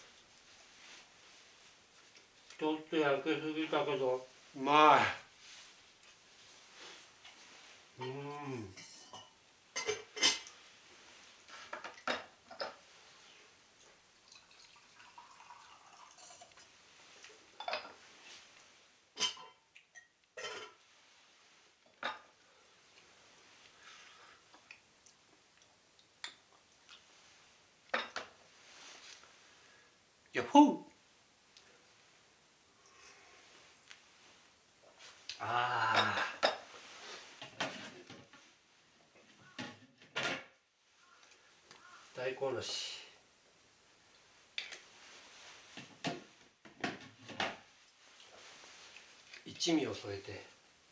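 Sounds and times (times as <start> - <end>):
man humming: 8.0 - 8.8, 35.3 - 36.4
tableware clinking and knocking: 8.8 - 10.5, 11.7 - 12.8, 19.2 - 20.8, 27.9 - 28.3, 36.0 - 36.7.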